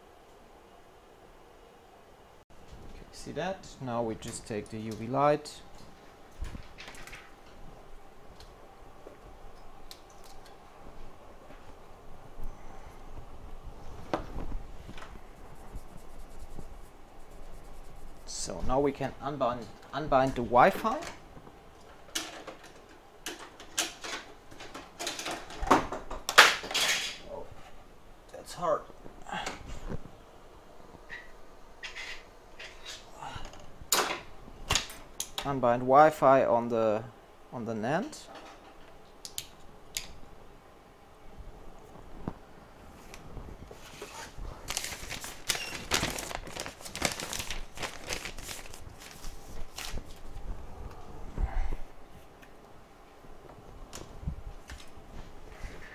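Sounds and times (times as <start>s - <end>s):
crinkling and clicking: 44.6s - 50.4s.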